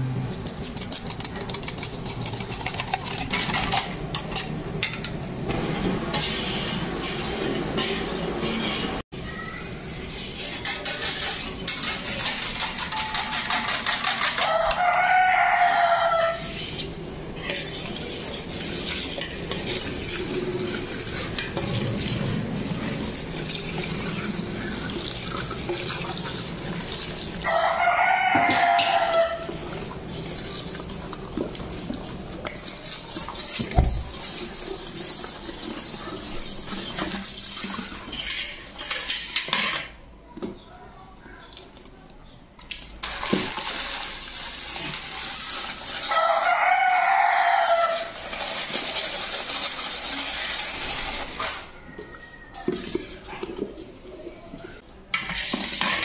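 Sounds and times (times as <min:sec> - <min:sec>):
steady background noise: 0:00.0 - 0:56.0
rooster crowing: 0:14.3 - 0:16.5, 0:27.4 - 0:29.5, 0:46.0 - 0:48.2, 0:51.6 - 0:53.0.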